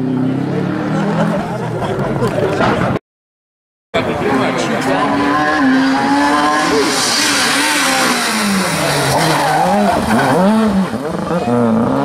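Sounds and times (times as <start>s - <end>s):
rally car engine revving: 0.0s - 3.0s, 4.0s - 12.0s
tyres skidding on dirt: 4.2s - 12.0s.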